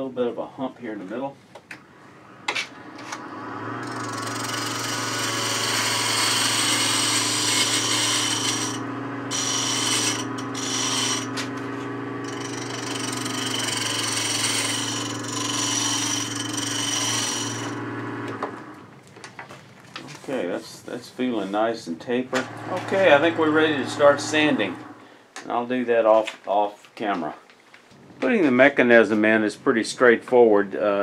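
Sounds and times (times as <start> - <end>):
wood lathe motor hum: 1.8 - 19.0, 22.1 - 25.1
gouge cutting wood shavings hissing: 3.8 - 17.8, 22.3 - 25.1.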